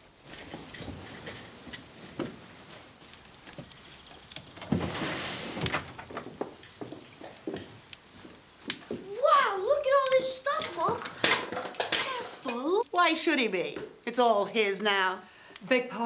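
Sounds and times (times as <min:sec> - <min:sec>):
footsteps in a room: 0:00.2 - 0:09.2.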